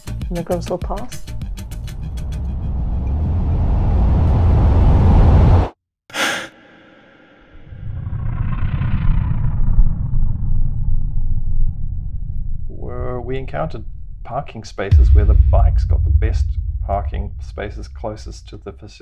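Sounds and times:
wind rushing over microphone: 14.9s - 19.0s.

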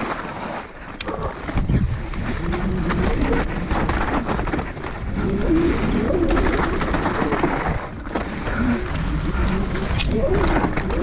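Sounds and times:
bike rattling over rough trail: 0.0s - 11.0s
tyre and wind rush: 0.0s - 11.0s
rider breathing hard: 8.1s - 10.6s.

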